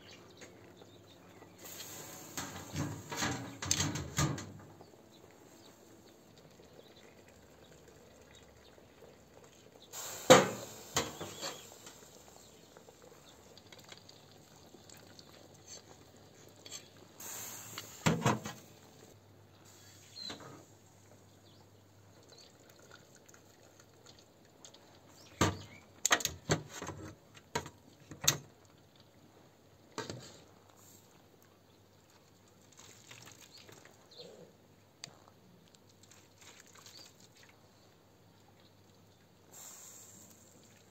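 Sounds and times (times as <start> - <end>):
liquid splashing: 32.4 - 34.0, 35.8 - 37.6.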